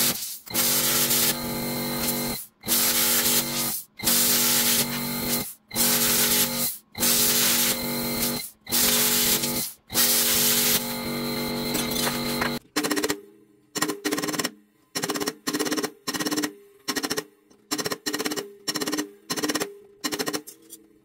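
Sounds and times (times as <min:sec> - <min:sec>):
plasma cutter hissing: 0:00.0 - 0:01.4, 0:02.0 - 0:10.8.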